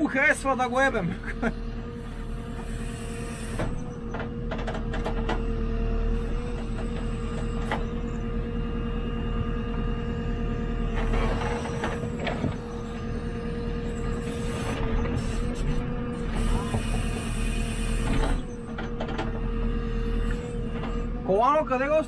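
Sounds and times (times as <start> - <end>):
backhoe loader diesel engine running: 0.0 - 22.0
sharp clicks and knocks: 3.6 - 5.5.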